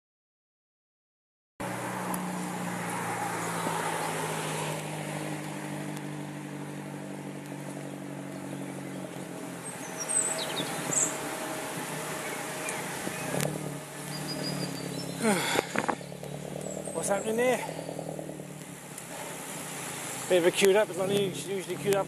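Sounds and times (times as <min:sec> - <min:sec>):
road traffic engine hum: 0:01.6 - 0:22.0
short high bird chirps: 0:14.1 - 0:15.2.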